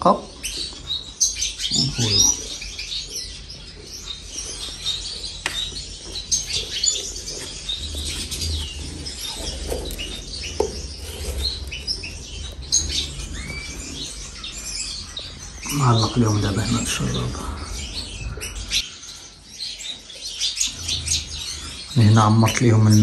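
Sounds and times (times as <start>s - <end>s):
cage birds chirping: 0.0s - 23.0s.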